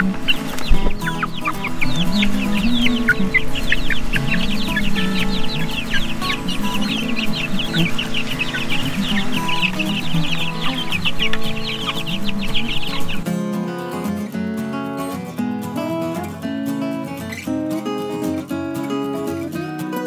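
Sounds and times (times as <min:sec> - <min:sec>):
chicks peeping: 0:00.0 - 0:13.2.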